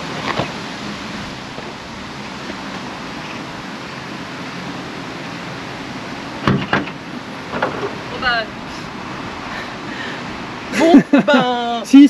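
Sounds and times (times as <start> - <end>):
trunk latch thunk: 6.4 - 7.9.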